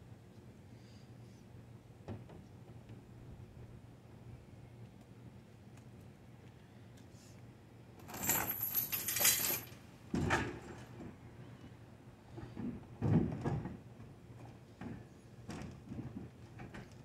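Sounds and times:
knocks and clinks of gear: 0:08.0 - 0:09.8.

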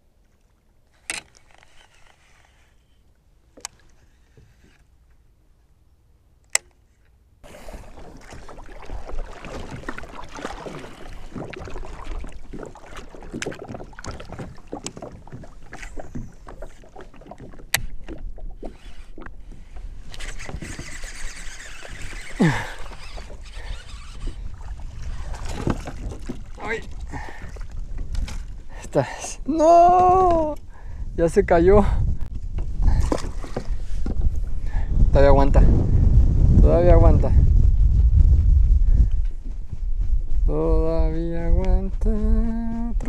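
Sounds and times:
water sloshing against kayak hull: 0:07.4 - 0:29.0, 0:32.3 - 0:34.6
short falling squeak: 0:20.2 - 0:24.5.

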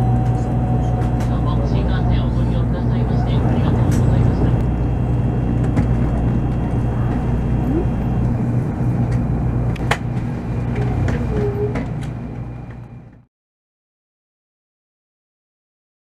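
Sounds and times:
train low rumble and hum: 0:00.0 - 0:13.3.

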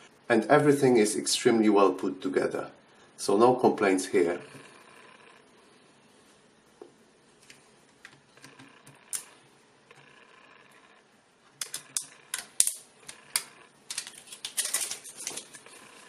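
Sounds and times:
plastic film crackling as peeled: 0:13.4 - 0:15.8.

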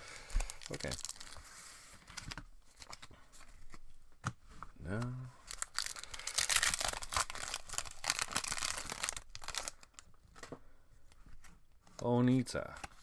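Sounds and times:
foil wrapper tearing and crinkling: 0:00.5 - 0:01.4, 0:05.5 - 0:10.0.

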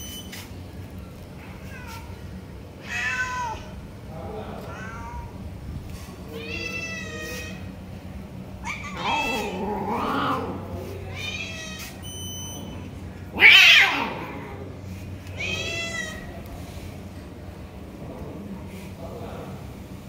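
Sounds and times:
cats meowing: 0:01.4 - 0:03.8, 0:04.5 - 0:05.5, 0:06.3 - 0:07.7, 0:08.6 - 0:16.6.

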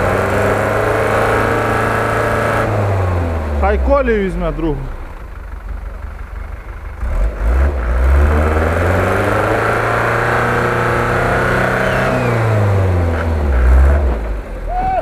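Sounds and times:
suv engine revving: 0:00.0 - 0:14.8.

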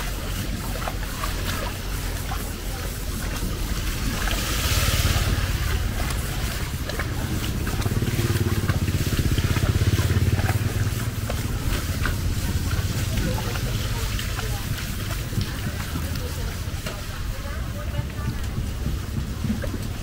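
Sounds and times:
rain hissing: 0:00.0 - 0:20.0
rain patters: 0:00.0 - 0:20.0
vehicle engine passing: 0:00.0 - 0:20.0.

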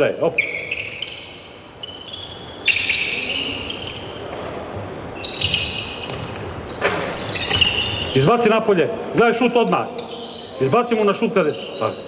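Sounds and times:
shoes squeaking on court floor: 0:00.2 - 0:12.0.

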